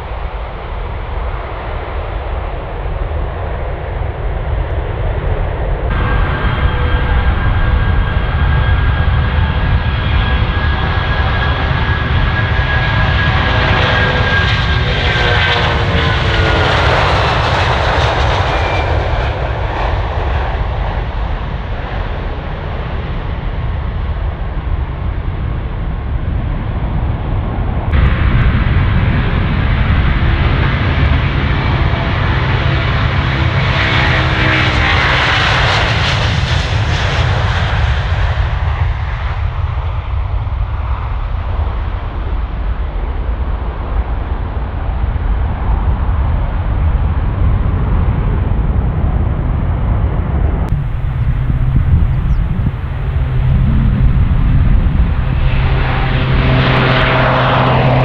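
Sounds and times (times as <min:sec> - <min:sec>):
jet engines roaring at takeoff: 0:00.0 - 0:58.0
turboprop propeller hum: 0:00.0 - 0:58.0.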